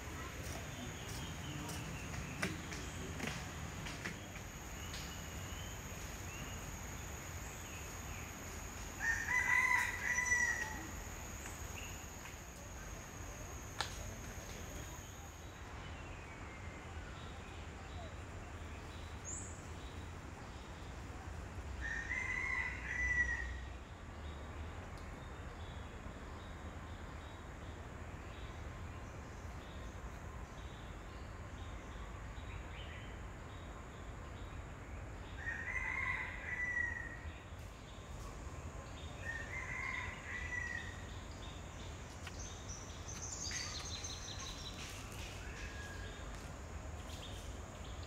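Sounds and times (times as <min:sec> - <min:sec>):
rooster crowing: 0:09.0 - 0:11.1, 0:21.8 - 0:23.6, 0:35.5 - 0:37.2.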